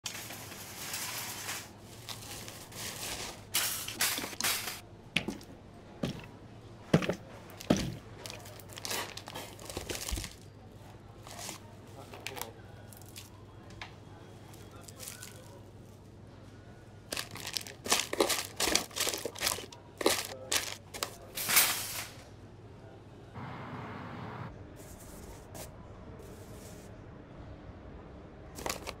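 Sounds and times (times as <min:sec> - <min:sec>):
plastic packaging crinkling: 0:07.6 - 0:10.5, 0:17.1 - 0:21.2, 0:28.6 - 0:29.0.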